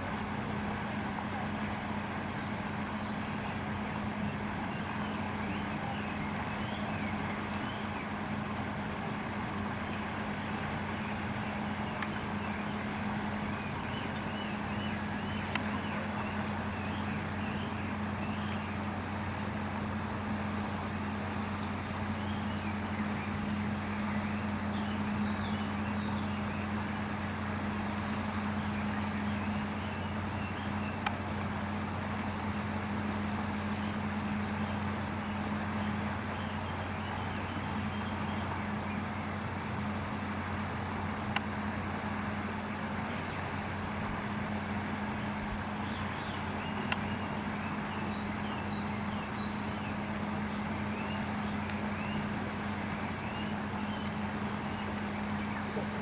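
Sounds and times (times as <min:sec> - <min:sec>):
outdoor background noise: 0:00.0 - 0:56.0
steady low hum: 0:00.0 - 0:56.0
faint ticks: 0:15.5 - 0:15.7.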